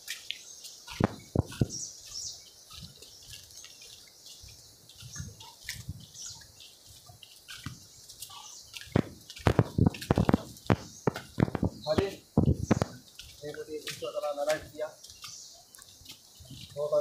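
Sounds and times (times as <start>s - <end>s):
forest ambience hiss: 0.0s - 17.0s
small birds chirping: 0.0s - 17.0s
low thuds: 1.0s - 1.9s, 8.9s - 13.0s.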